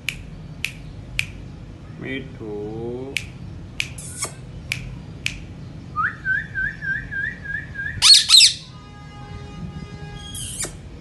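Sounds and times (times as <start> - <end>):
parrot whistling: 6.0 - 8.7
parrot harsh squawks: 8.0 - 8.7, 10.2 - 10.8.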